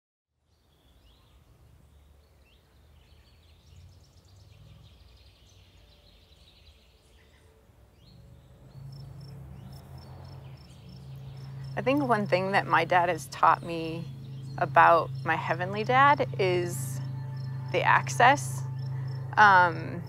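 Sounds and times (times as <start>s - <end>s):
birds chirping: 0.4s - 20.0s
low steady rumble: 7.9s - 20.0s.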